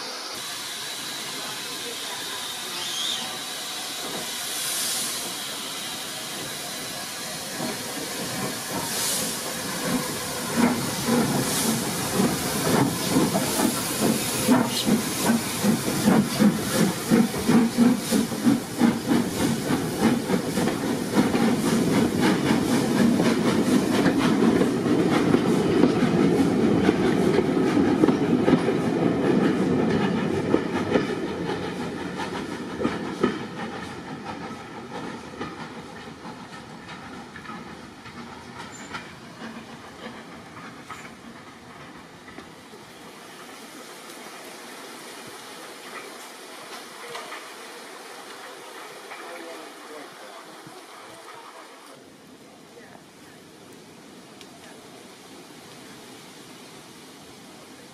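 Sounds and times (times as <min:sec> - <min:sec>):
short blows of steam: 0:00.0 - 0:28.0
steam hissing: 0:00.0 - 0:52.2
train rumble and clickety-clack: 0:00.0 - 0:57.9.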